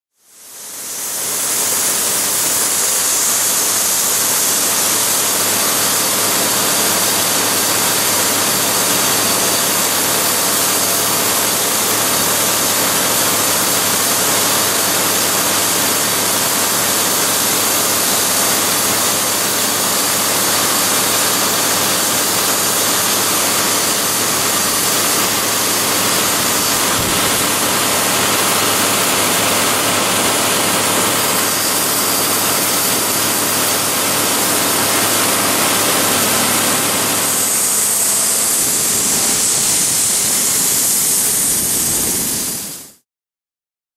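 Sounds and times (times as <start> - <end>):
grain pouring hiss: 0.3 - 42.8
tractor engine hum: 3.3 - 40.8.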